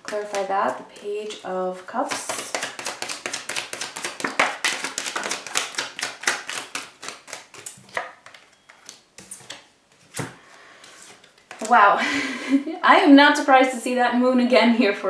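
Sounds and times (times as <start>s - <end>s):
cards being shuffled: 0.0s - 1.5s, 2.1s - 11.7s.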